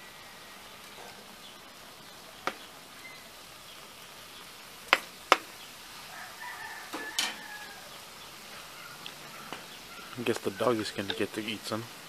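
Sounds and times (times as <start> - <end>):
spatula tapping on griddle: 4.9 - 5.5, 6.9 - 7.5.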